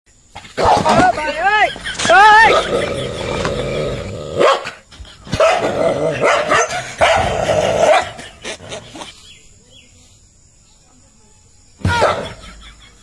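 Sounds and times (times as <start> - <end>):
dog barking: 4.4 - 4.7, 5.4 - 8.2, 11.9 - 12.4.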